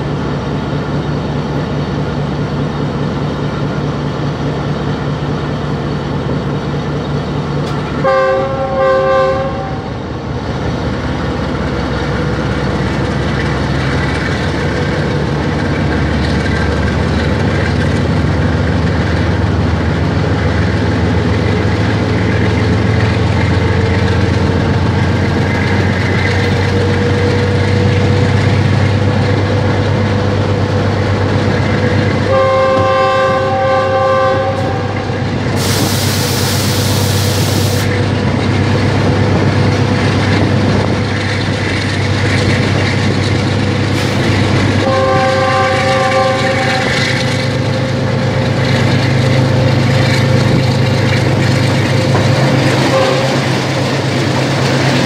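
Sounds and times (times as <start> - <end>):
diesel locomotive engine: 0.0 - 55.0
locomotive air horn: 8.0 - 10.0, 32.3 - 37.9, 44.8 - 47.2, 52.8 - 53.5.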